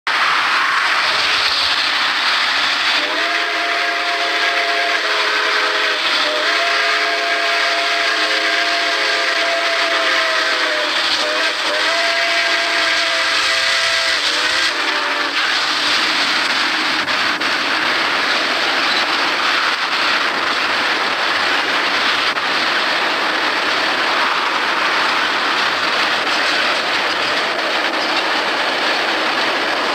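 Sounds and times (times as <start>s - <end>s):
train running by: 0.1s - 29.9s
steam whistle chord blasts: 3.0s - 15.4s.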